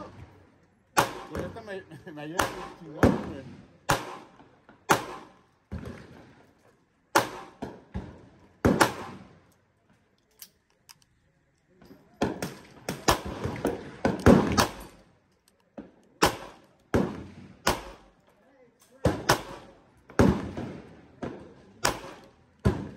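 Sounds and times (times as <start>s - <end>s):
handgun shots: 4.9s - 5.4s, 14.1s - 14.9s, 16.2s - 16.6s, 17.6s - 18.1s, 21.8s - 22.8s.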